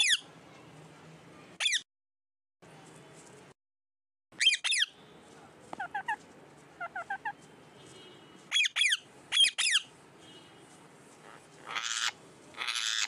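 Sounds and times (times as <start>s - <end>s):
parakeet screeching: 0.0s - 0.2s, 1.6s - 1.8s, 4.4s - 4.9s, 6.8s - 7.4s, 8.5s - 9.9s, 11.2s - 13.0s.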